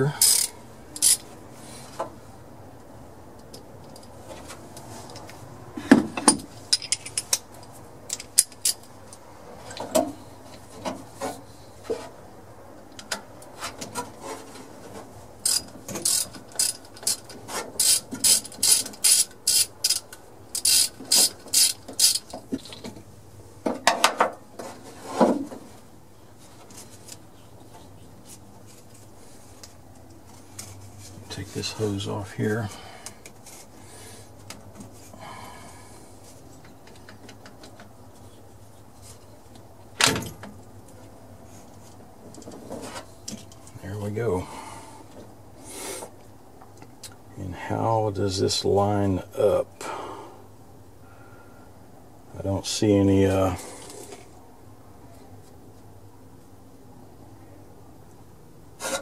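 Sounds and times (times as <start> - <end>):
socket ratchet clicking: 0.2 - 1.2, 17.8 - 22.3.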